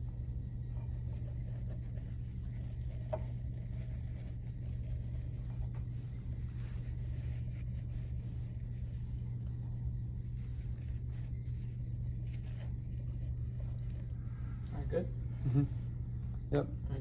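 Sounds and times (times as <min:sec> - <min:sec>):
low machine hum: 0:00.0 - 0:17.0.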